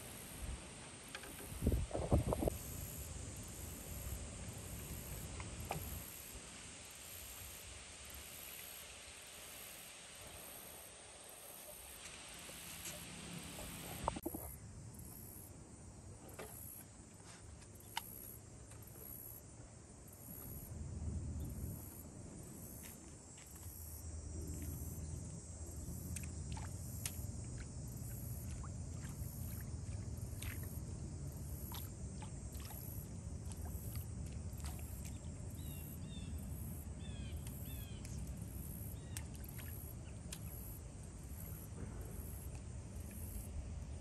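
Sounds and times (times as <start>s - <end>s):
wind rumble: 1.5s - 2.6s
water lapping: 11.6s - 14.4s, 25.9s - 36.0s, 37.5s - 42.5s.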